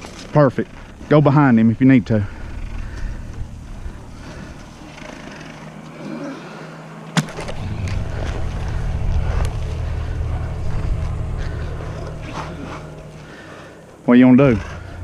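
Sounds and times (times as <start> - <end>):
camera handling rumble: 7.1 - 12.4.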